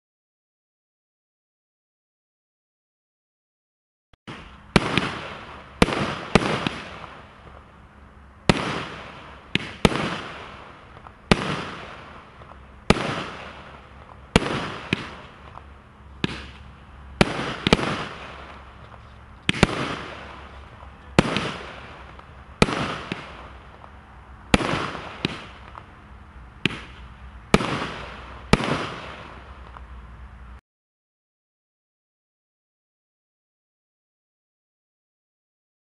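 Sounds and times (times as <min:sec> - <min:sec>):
firework cake bangs: 0:04.3 - 0:07.6, 0:08.5 - 0:25.9, 0:26.6 - 0:29.8.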